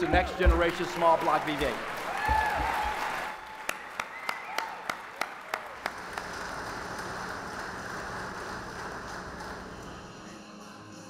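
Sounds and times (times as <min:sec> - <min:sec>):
crowd clapping: 0:00.0 - 0:10.0.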